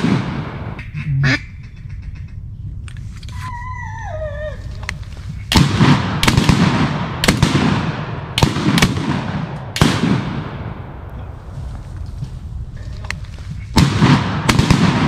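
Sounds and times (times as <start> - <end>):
echoing shotgun blasts: 0.0 - 0.8, 5.5 - 11.1, 13.7 - 15.0.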